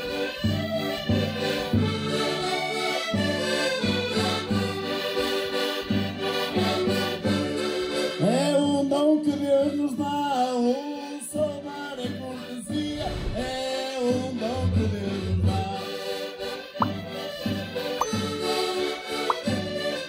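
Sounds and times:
button accordions playing folk tune: 0.0 - 12.9, 13.8 - 20.0
men singing: 8.2 - 16.1.

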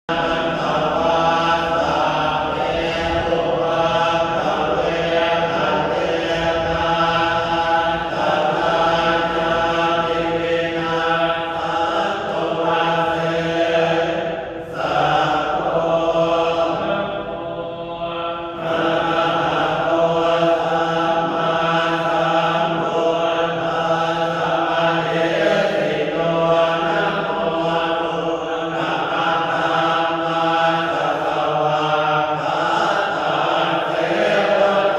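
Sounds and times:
monks chanting together: 0.1 - 34.9.

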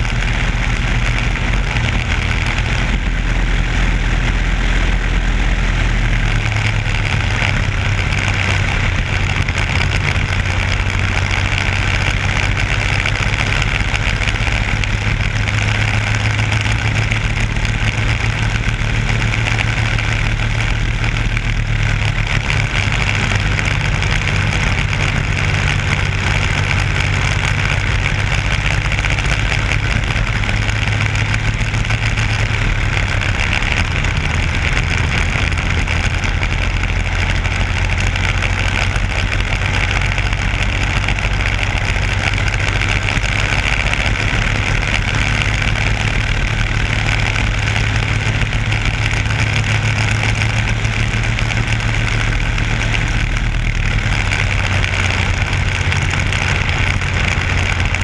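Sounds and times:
constant rushing noise: 0.0 - 58.0
race car engine running hard: 0.0 - 58.0.

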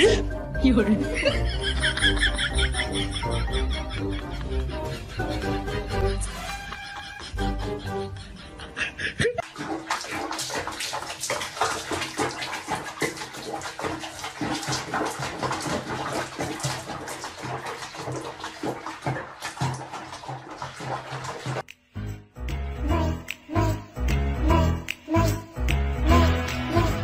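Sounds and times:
bathwater sloshing and splashing: 1.2 - 3.7, 9.3 - 21.7.

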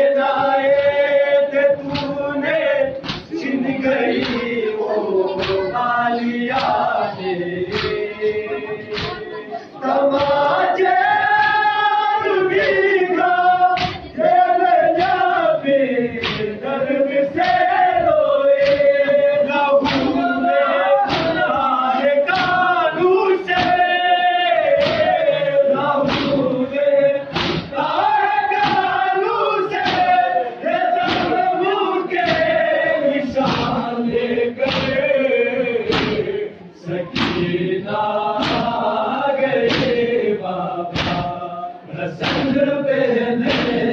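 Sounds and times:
men singing a lament: 0.0 - 43.9
hands striking chests: 27.3 - 27.7, 38.4 - 38.8.

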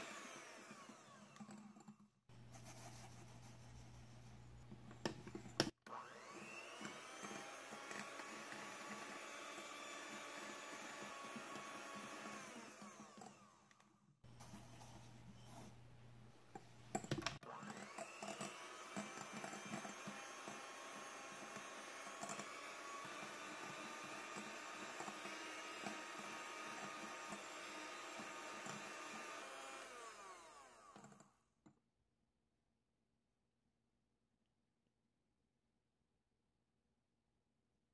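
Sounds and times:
electric hand mixer whirring: 0.0 - 2.0, 5.0 - 14.9, 16.9 - 31.3
mixer clicks: 16.9 - 31.3.

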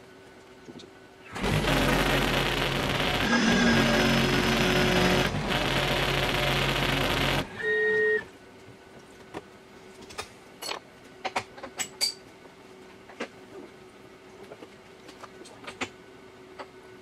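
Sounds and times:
faint machine hum: 0.0 - 17.0
milling machine cutting metal: 1.3 - 7.7.

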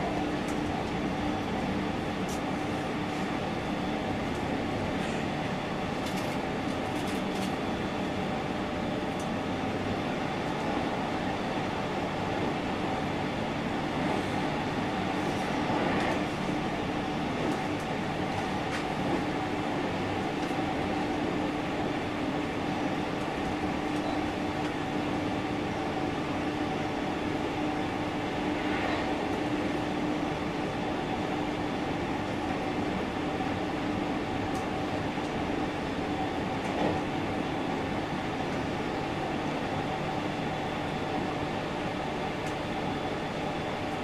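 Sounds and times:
train wheels rumbling on rail: 13.8 - 24.9.

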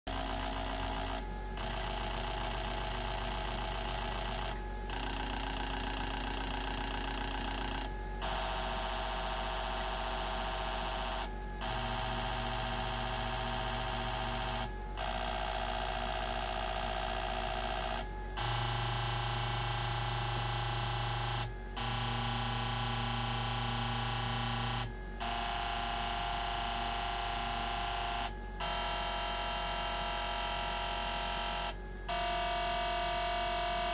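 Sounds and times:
steady low hum: 0.1 - 22.2
fuel injectors buzzing: 0.1 - 25.6.

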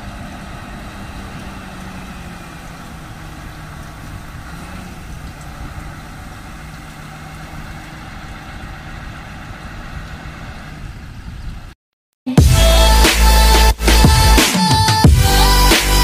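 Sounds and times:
truck engine running: 0.0 - 16.0
loud electronic music: 12.3 - 16.0.

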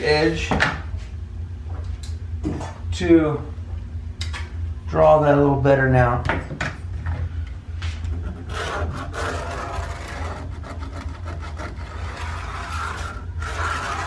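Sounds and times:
steady low hum: 0.0 - 14.0
pencil scratching along straight edge: 8.3 - 14.0.

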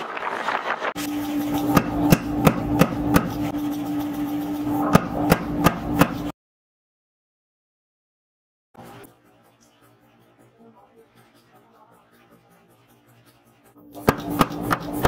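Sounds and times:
machine hum: 1.0 - 6.3.

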